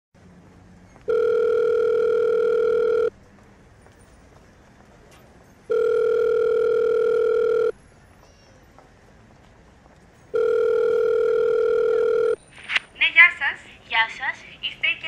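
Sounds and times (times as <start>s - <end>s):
telephone ringback tone: 1.1s - 3.2s, 5.7s - 7.8s, 10.3s - 12.4s.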